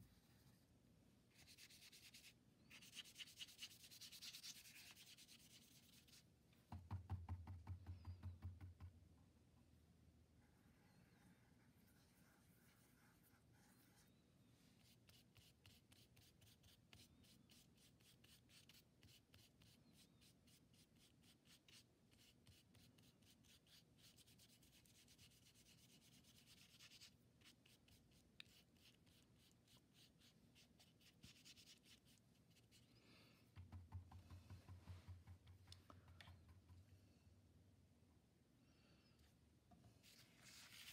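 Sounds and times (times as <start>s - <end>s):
paintbrush scrubbing on paper: 1.3s - 6.2s, 11.6s - 14.2s, 14.8s - 32.9s, 40.0s - 40.9s.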